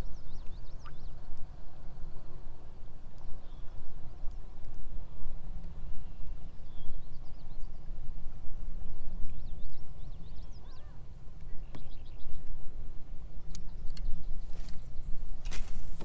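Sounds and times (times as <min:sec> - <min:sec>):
birds chirping: 0:09.7 - 0:12.4.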